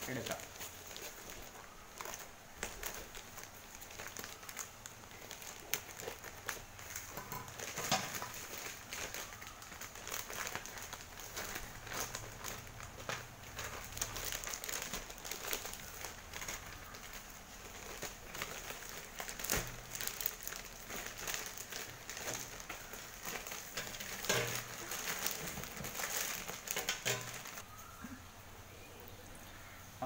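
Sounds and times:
plastic bag crinkling: 0.0s - 27.6s.

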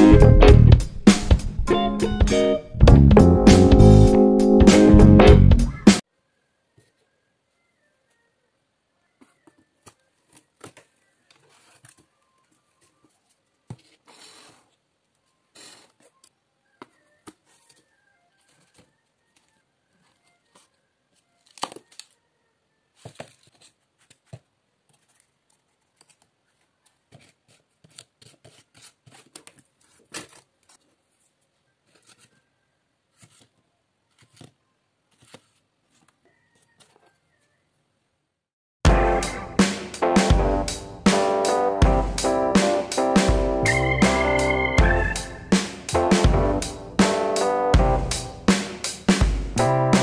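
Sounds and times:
cardboard pieces tapping and scraping: 13.6s - 14.6s, 23.0s - 31.0s, 33.1s - 36.2s.

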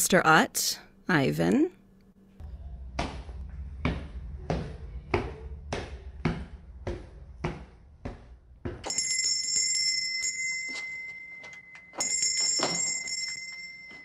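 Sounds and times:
footsteps: 3.0s - 9.0s
shop door bell ringing: 8.8s - 14.0s.

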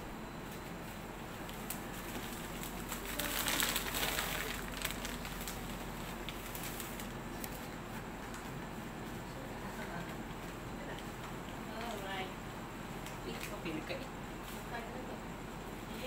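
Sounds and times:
plastic bag crinkling: 1.5s - 7.7s.

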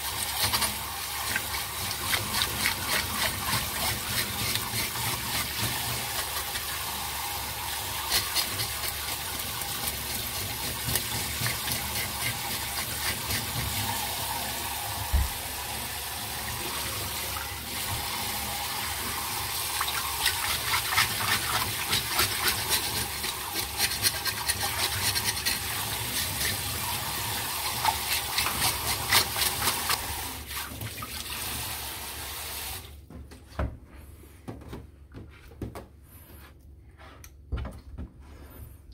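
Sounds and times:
fish scaler scraping scales: 0.3s - 6.7s, 7.9s - 13.8s, 19.8s - 26.8s, 27.6s - 30.1s.

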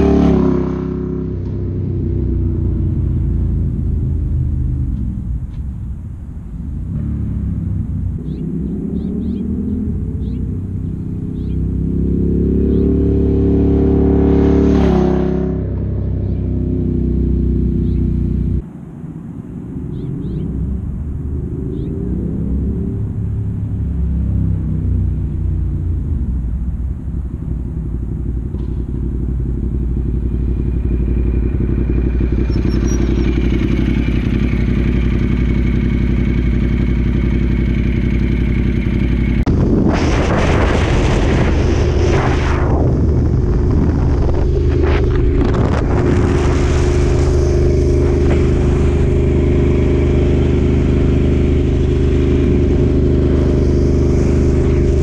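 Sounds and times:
motorcycle engine: 0.0s - 18.7s, 19.6s - 55.0s
wind noise: 38.9s - 55.0s.

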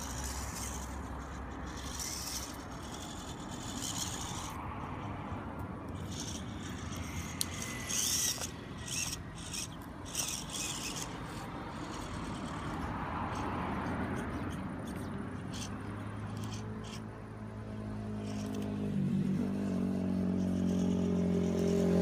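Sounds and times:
rubber tires scraping on rock: 0.0s - 5.0s, 5.9s - 15.7s, 19.4s - 22.0s
car passing: 0.0s - 22.0s
small electric motor whirring: 0.0s - 22.0s.

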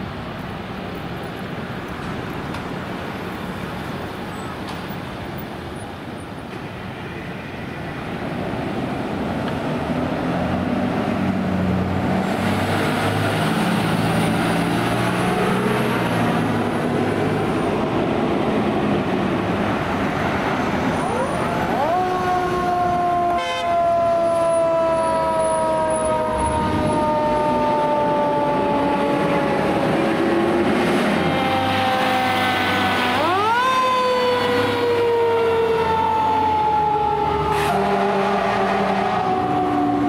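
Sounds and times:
diesel engines rumbling: 0.0s - 40.0s
road noise: 0.0s - 40.0s
fire engine siren wailing: 9.9s - 40.0s.

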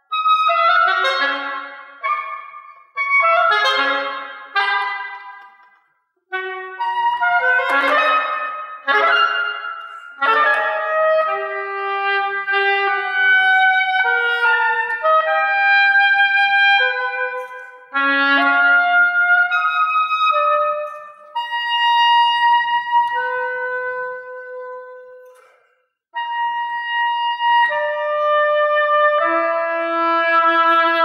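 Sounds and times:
oboe playing held notes: 6.3s - 25.6s.

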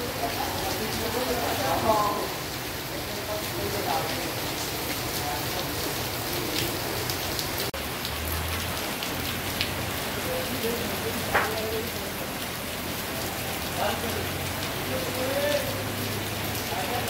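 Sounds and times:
heavy rain on paving and foliage: 0.0s - 17.0s
water drips and splashes: 0.0s - 17.0s.

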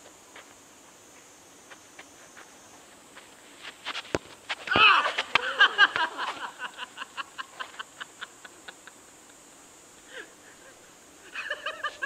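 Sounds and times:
person laughing: 4.7s - 9.0s, 10.2s - 12.0s.

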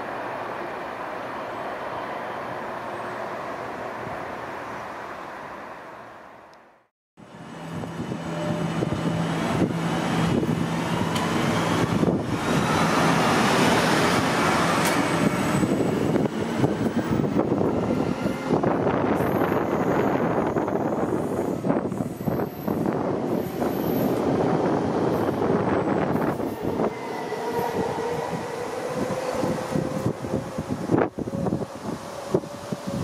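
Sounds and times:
train running on rails: 0.0s - 6.5s, 7.2s - 33.0s
train whine rising in pitch: 8.0s - 33.0s.

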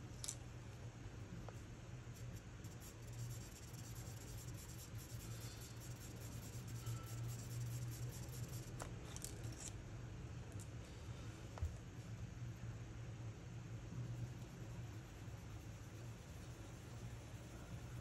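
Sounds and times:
steady low hum: 0.0s - 18.0s
charcoal pencil scratching on paper: 2.2s - 8.8s, 14.2s - 18.0s.

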